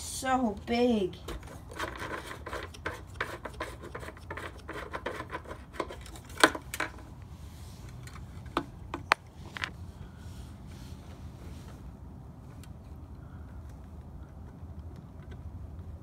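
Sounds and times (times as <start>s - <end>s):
fuel cap rubbing and scraping: 1.3s - 9.8s.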